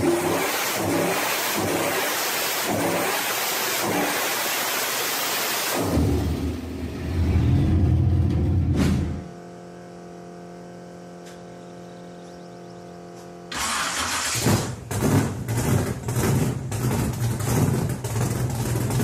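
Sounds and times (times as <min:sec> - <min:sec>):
car engine revving in burnout: 0:00.0 - 0:08.8, 0:13.5 - 0:19.0
steady hum of held tones: 0:09.2 - 0:13.5
car engine starting and idling: 0:12.4 - 0:19.0.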